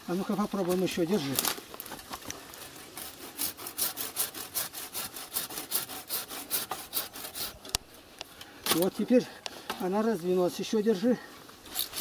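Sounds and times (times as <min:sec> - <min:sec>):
hand saw cutting branch: 0:02.5 - 0:07.8, 0:11.6 - 0:12.0.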